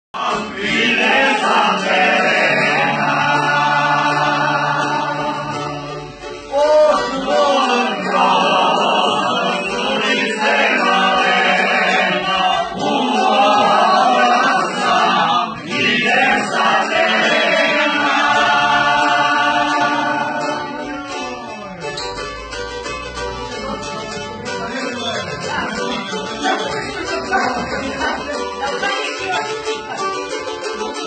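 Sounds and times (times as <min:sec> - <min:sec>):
several voices singing together: 0:00.2 - 0:21.5.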